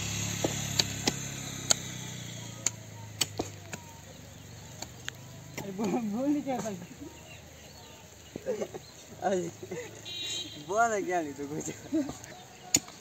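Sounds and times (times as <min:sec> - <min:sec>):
low engine hum: 0:00.0 - 0:09.5
pickaxe striking stony soil: 0:00.3 - 0:01.9, 0:02.6 - 0:03.9.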